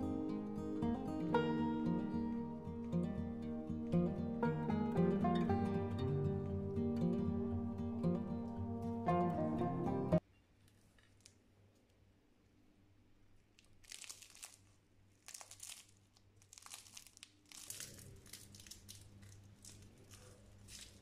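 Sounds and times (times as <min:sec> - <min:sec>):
pastry crackling and tearing: 0:13.4 - 0:21.0.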